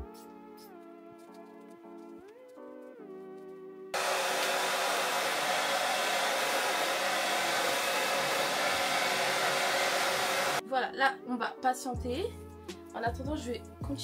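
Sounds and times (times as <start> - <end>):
hair dryer blowing: 4.0 - 10.6.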